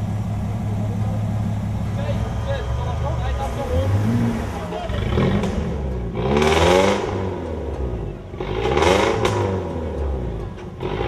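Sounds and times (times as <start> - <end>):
engine revving: 2.8 - 11.0.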